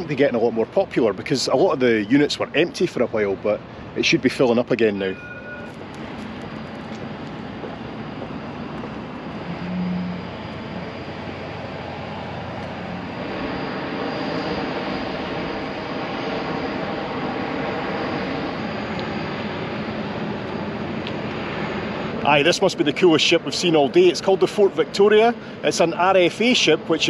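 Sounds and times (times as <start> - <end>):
steady mechanical drone: 0.0 - 27.0
outdoor rush: 2.4 - 27.0
brief low hum: 9.3 - 11.5.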